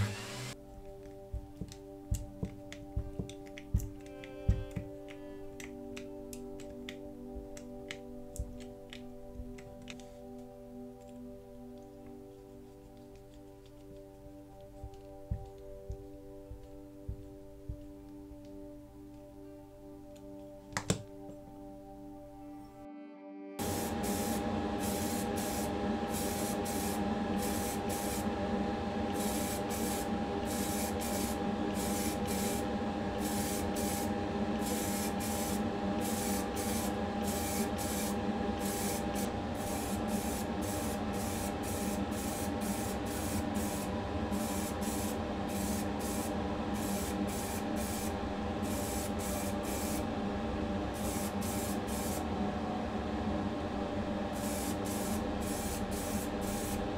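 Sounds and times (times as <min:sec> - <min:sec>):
spray bursts hissing: 0:00.0 - 0:00.6, 0:23.6 - 0:28.3, 0:29.1 - 0:50.0, 0:50.9 - 0:52.3, 0:54.3 - 0:56.9
motor hum with whine: 0:00.0 - 0:10.0, 0:23.6 - 0:56.9.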